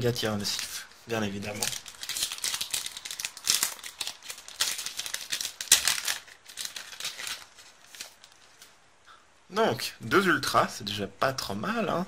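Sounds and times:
foil wrapper crinkling: 0.4 - 8.7.

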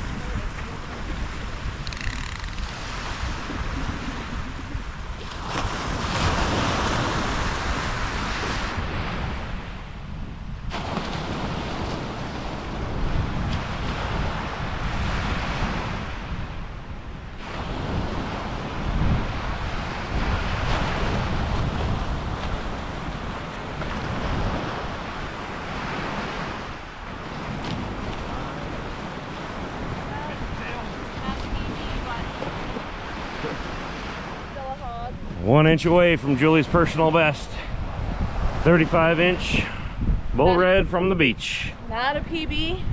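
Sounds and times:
surf breaking on beach: 0.0 - 42.9
wind buffeting microphone: 0.0 - 42.9.

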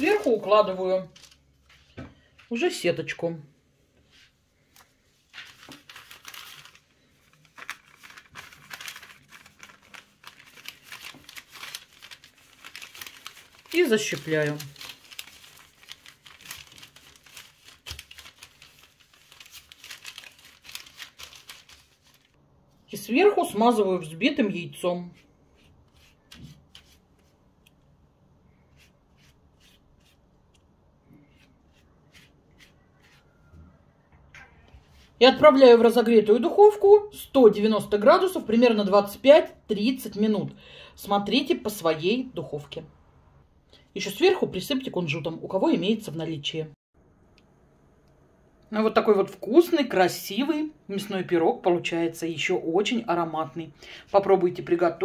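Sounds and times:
baking parchment rustling: 0.0 - 2.6, 4.0 - 27.6, 28.5 - 30.6, 31.2 - 33.8
pastry brush strokes: 3.6 - 23.0, 24.7 - 27.6, 28.4 - 33.8.

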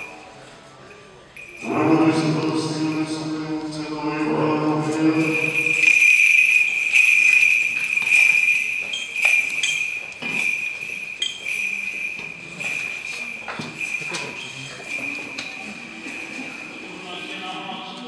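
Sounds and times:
small bells jingling: 0.0 - 0.2, 1.3 - 4.4, 5.0 - 17.5
chanting voices: 1.6 - 6.0.

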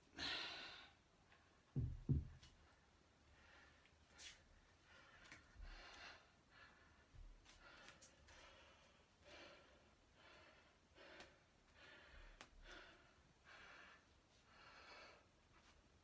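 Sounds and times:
man breathing hard: 4.8 - 15.4.

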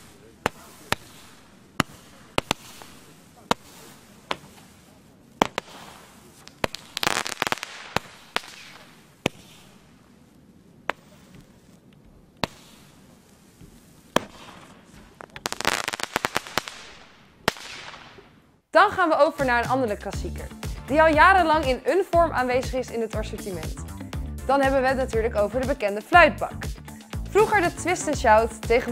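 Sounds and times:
firework cake pops: 0.0 - 9.9, 12.4 - 18.3
rapid crackling pops: 0.0 - 18.5.

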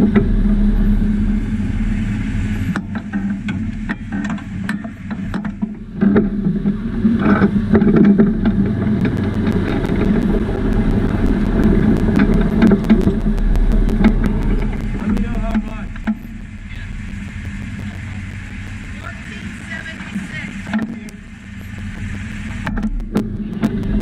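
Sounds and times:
race car engine running: 0.0 - 24.0
clicks and rattles from car: 2.8 - 10.3.

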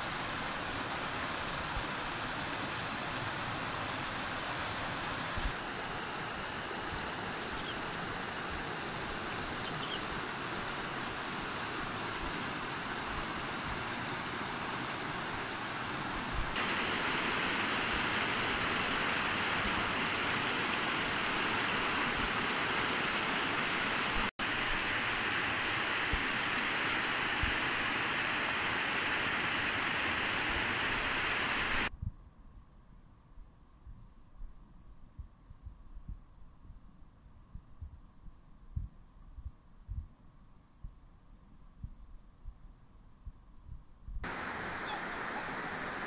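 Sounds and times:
stream rushing over rocks: 0.0 - 31.9, 44.2 - 46.0.

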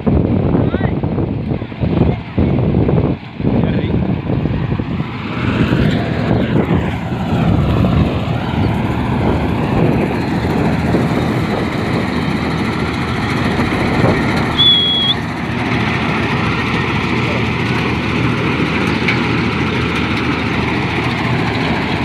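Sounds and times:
combine harvester running: 0.1 - 22.0
high steady tone: 12.0 - 15.4.

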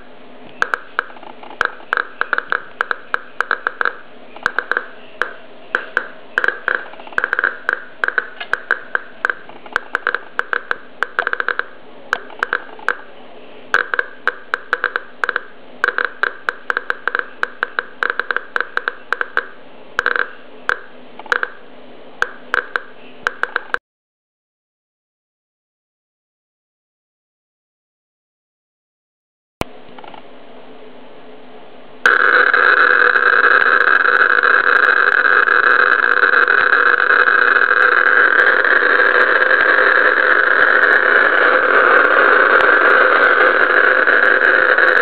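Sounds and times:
radiation meter clicking: 0.5 - 13.1, 13.7 - 21.6, 22.2 - 23.8, 32.0 - 45.0.

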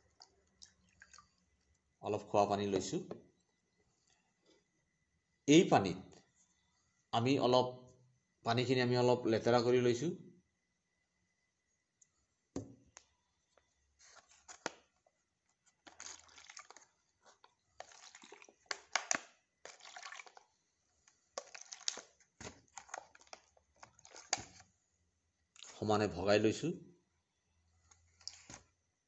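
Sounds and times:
water pouring between plastic cups: 0.0 - 2.0, 15.7 - 24.7
plastic cups crinkling and clicking: 12.9 - 24.7, 27.8 - 28.7.

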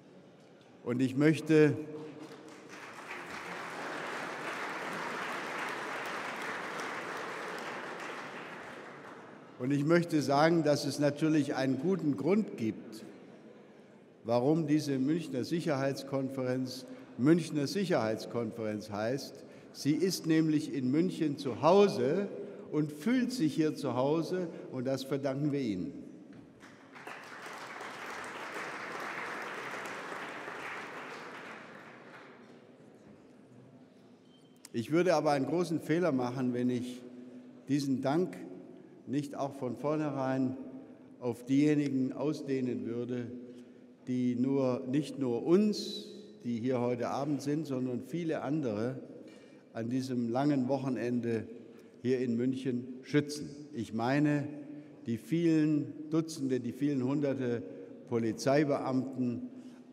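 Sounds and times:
audience applauding: 2.2 - 9.4, 26.6 - 32.6.

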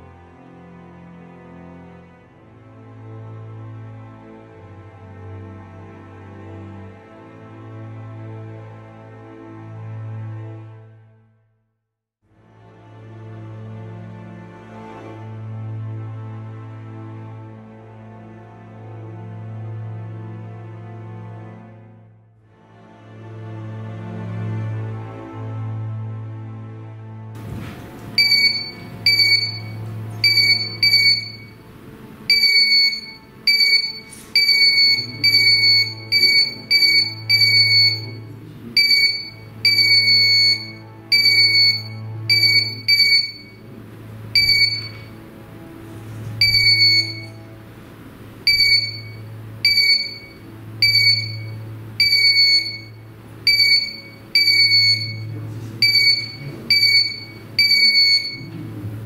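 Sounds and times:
low droning background music: 0.0 - 11.3, 12.3 - 59.0
high electronic beeps: 28.2 - 31.6, 32.3 - 43.6, 44.4 - 45.1, 46.4 - 47.4, 48.5 - 58.5.

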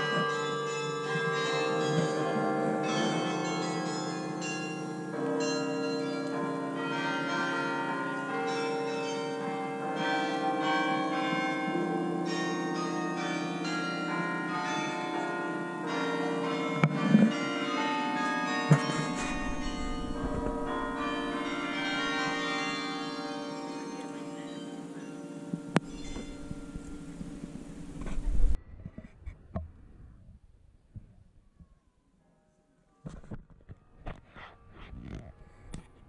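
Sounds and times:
carillon bells playing music: 18.2 - 28.0.

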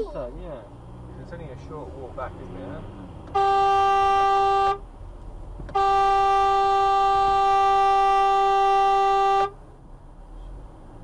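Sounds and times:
car horn blasts: 3.3 - 4.8, 5.7 - 9.6.

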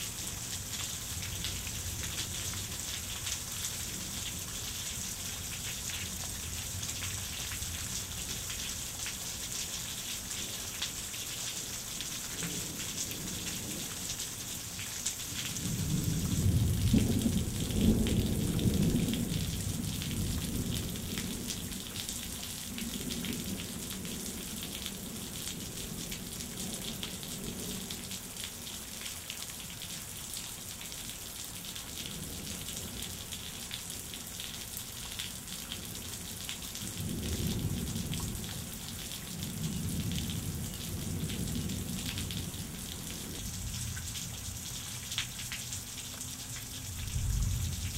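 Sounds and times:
rain splashing on wet ground: 0.0 - 47.9
rolling thunder: 15.7 - 21.4, 46.8 - 47.9.

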